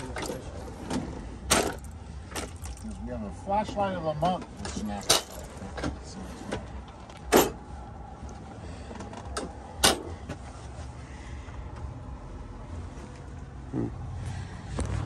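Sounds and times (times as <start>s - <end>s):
metal drawers clunking shut: 0.0s - 2.6s, 4.4s - 7.6s, 9.1s - 10.3s.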